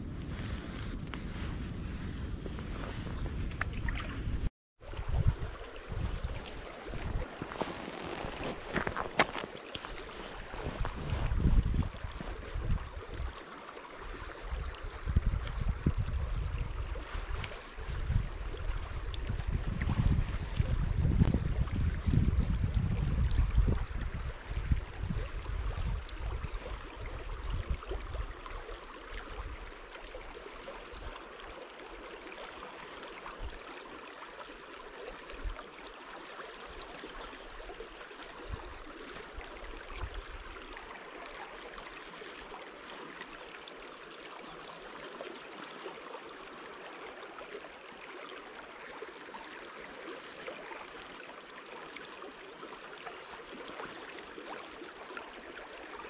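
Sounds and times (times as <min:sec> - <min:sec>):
wind buffeting microphone: 0:00.0 - 0:13.3, 0:14.4 - 0:28.3
flowing water hiss: 0:05.6 - 0:15.6.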